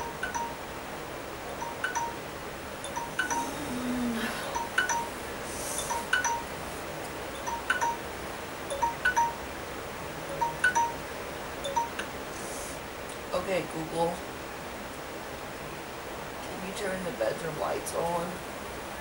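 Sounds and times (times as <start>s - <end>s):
chimes tinkling: 2.8s - 3.8s, 4.4s - 5.2s, 5.8s - 6.6s, 10.4s - 11.0s.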